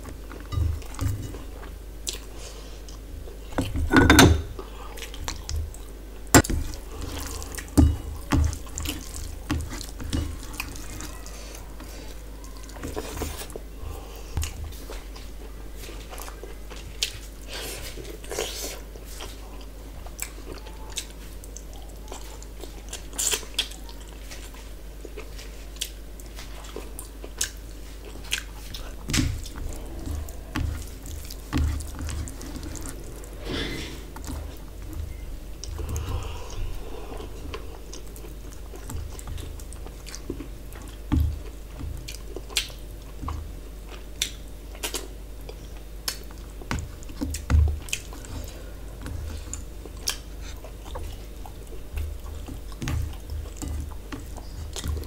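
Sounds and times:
chewing and lip smacks: 17.9s - 33.3s, 37.2s - 55.0s.

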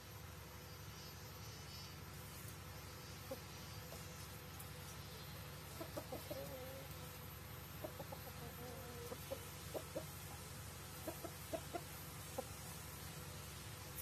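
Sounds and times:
rooster clucking: 5.7s - 7.0s, 7.7s - 10.2s, 11.0s - 12.7s.

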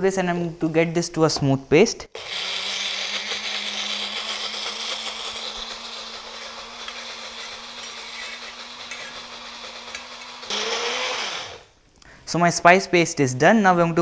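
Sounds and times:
electric blender motor whirring: 2.2s - 11.7s.

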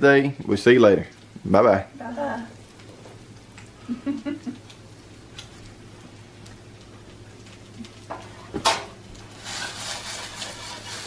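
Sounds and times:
faint steady hum: 0.0s - 11.0s
meat sizzling in frying pan: 0.0s - 11.0s.

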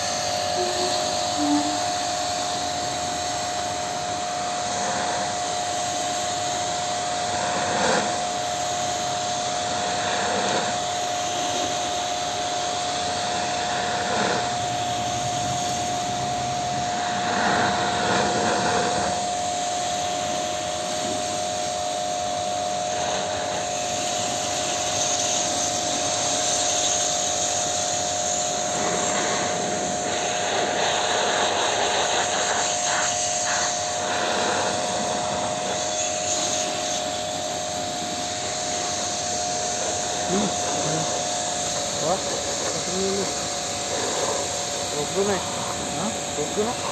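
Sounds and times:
pressure washer motor whine: 0.0s - 46.9s
water jet hissing on metal coil: 0.0s - 46.9s.

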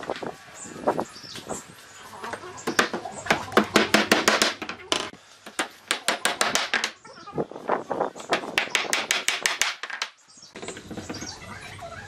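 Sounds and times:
rapid hammering: 3.6s - 4.7s, 5.6s - 6.9s, 8.3s - 10.1s.

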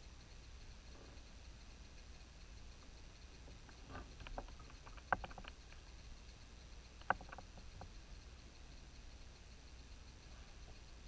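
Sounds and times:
sharp clacks: 3.7s - 6.0s.

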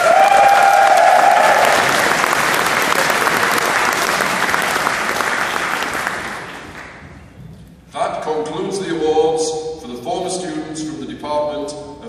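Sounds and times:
voice-like cheer: 0.0s - 2.1s
audience applauding: 0.0s - 7.0s.

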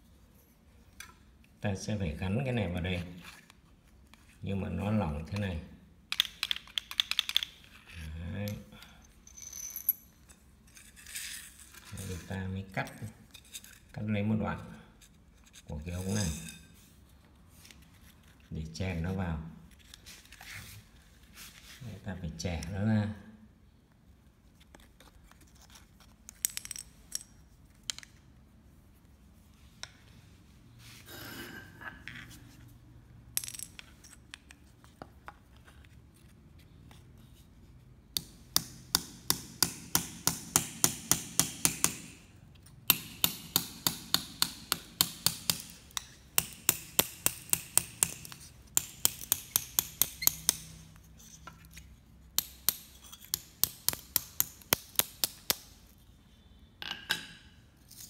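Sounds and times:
hammer tapping hollow tube: 38.2s - 42.2s, 42.9s - 50.8s.

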